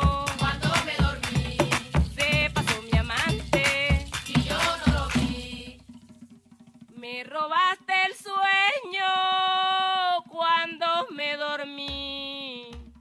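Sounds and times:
song with singing voice: 0.0s - 5.9s.

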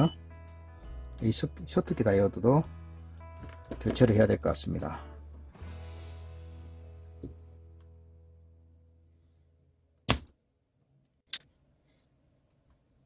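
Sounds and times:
background music: 0.0s - 8.9s.

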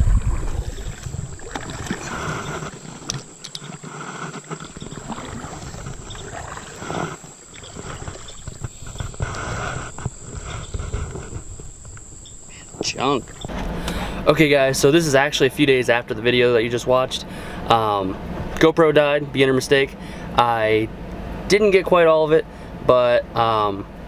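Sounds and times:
knocks and rubbing on kayak hull: 0.0s - 13.8s
water splashing: 0.0s - 14.2s.

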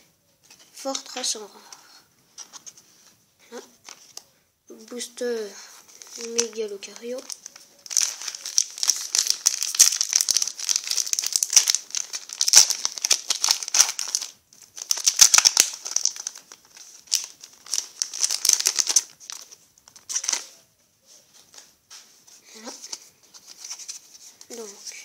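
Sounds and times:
foil wrapper crinkling and tearing: 5.9s - 20.6s.

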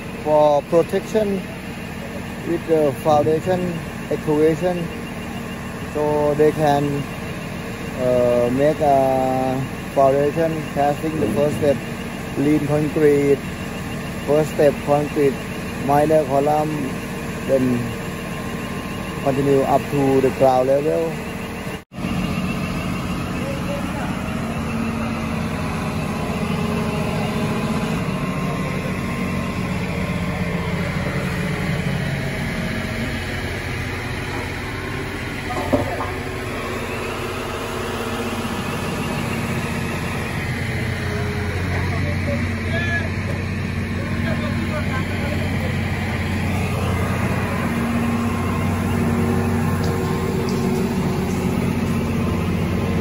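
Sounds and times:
heavy machinery engine idling: 0.0s - 53.0s.

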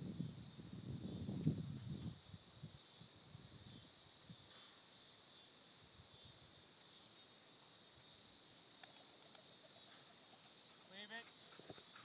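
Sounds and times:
crickets and insects chirping: 0.0s - 12.0s.

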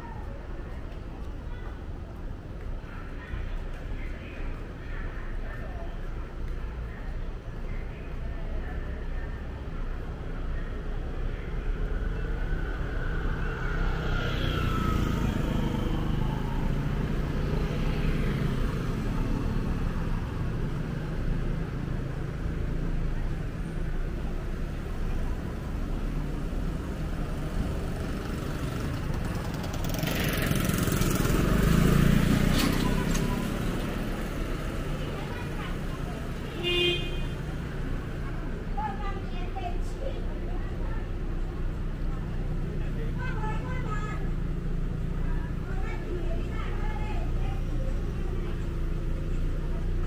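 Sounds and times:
street traffic: 0.0s - 50.0s
vehicle passing close: 11.7s - 22.9s, 24.6s - 36.5s.

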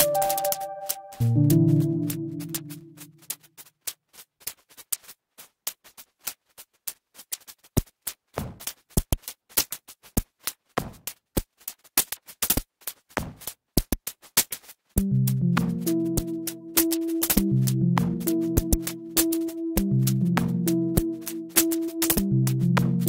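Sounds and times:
glitchy electronic music: 0.0s - 3.2s, 15.0s - 23.0s.

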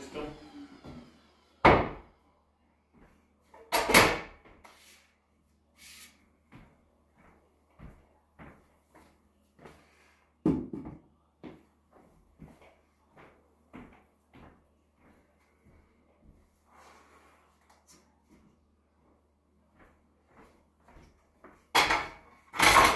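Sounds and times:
footsteps on hardwood floor: 2.9s - 3.3s, 6.4s - 16.6s, 18.3s - 21.7s.

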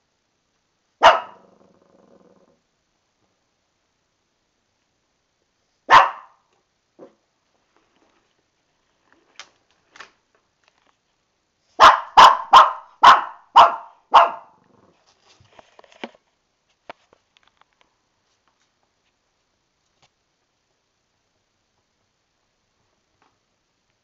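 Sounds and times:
puppy barking: 1.0s - 1.5s, 5.9s - 6.4s, 11.8s - 14.6s.

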